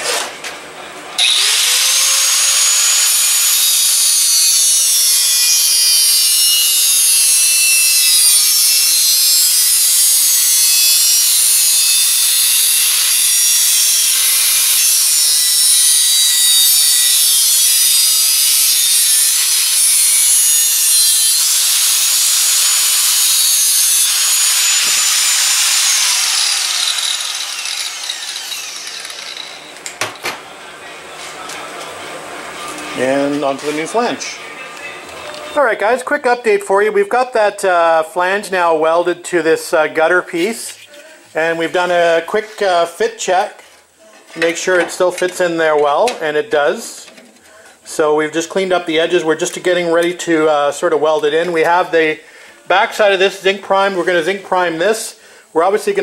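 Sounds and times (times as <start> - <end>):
angle grinder cutting steel: 1.2 - 30.0.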